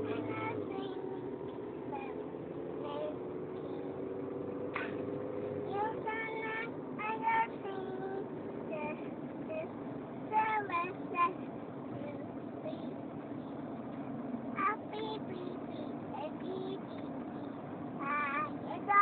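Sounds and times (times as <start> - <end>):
toddler singing: 0.0 - 1.1, 2.8 - 3.3, 5.7 - 9.7, 10.3 - 13.0, 14.6 - 17.1, 18.0 - 19.0
car humming on the road: 0.0 - 19.0.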